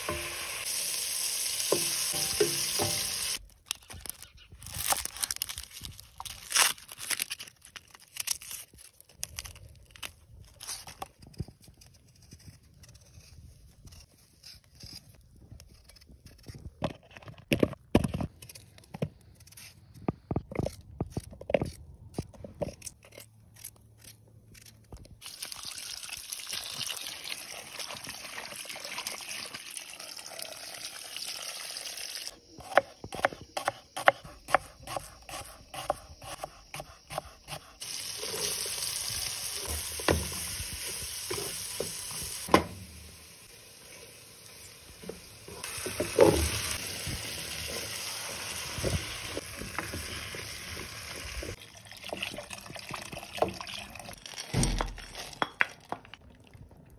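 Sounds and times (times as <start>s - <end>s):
potatoes sizzling in pot: 0.0s - 3.4s, 25.2s - 51.6s
wooden spoon knocking pot: 1.7s - 3.1s
knife chopping on wooden board: 32.6s - 37.7s.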